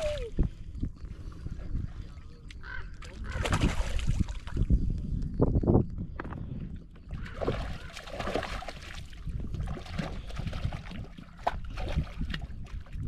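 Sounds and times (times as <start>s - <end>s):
wind rumble on microphone: 0.0s - 13.0s
water lapping: 7.1s - 13.0s.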